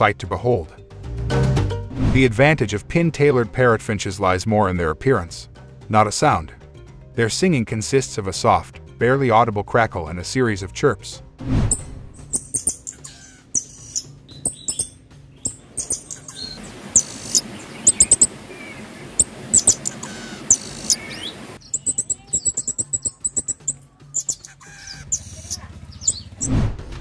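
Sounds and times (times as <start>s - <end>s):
bird chirping: 12.2s - 26.5s.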